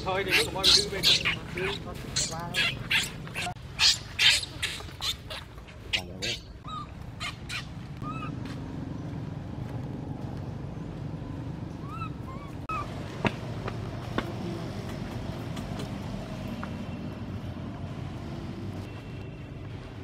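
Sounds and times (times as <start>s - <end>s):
monkey squeaking: 0.0s - 8.4s, 11.8s - 12.9s.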